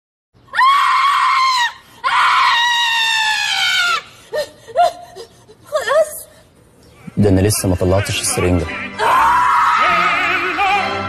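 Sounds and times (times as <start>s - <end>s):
woman sobbing yelps: 3.6s - 6.3s.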